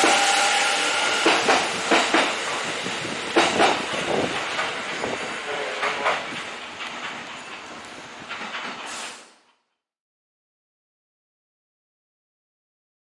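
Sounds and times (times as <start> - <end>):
train wheel and rail noise: 0.0 - 9.8
wheel clacks over rail joints: 1.2 - 2.7, 3.3 - 9.8.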